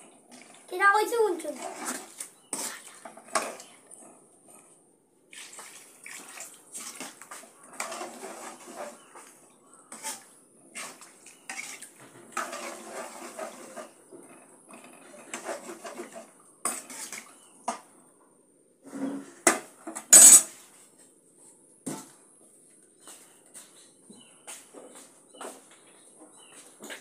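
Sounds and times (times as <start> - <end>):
metal spoon scraping a pan: 1.5 - 4.1, 6.8 - 17.4, 18.8 - 20.7.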